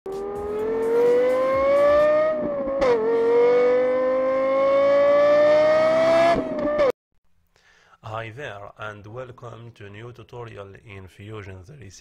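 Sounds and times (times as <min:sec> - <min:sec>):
car engine accelerating: 0:00.1 - 0:06.9.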